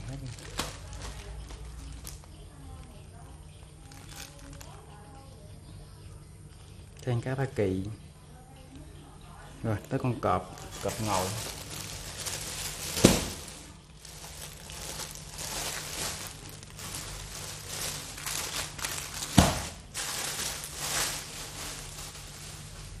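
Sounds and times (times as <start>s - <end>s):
packs slapping on tile floor: 0.0s - 2.2s, 10.5s - 23.0s
plastic bags crinkling: 0.0s - 5.3s, 9.7s - 23.0s.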